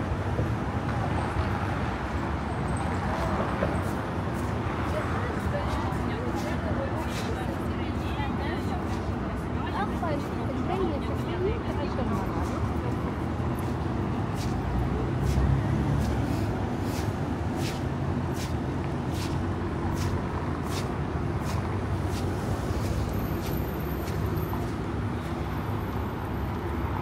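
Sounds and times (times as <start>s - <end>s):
street traffic rumble: 0.0s - 27.0s
footsteps walking: 12.4s - 25.6s.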